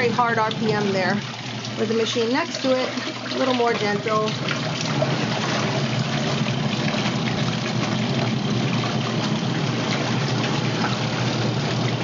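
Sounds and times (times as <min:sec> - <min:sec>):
washing machine motor hum: 0:00.0 - 0:12.0
water splashing and trickling: 0:00.0 - 0:12.0.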